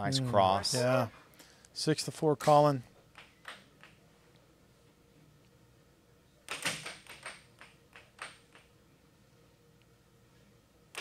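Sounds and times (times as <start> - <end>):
air hockey puck clacking: 6.5 - 8.7.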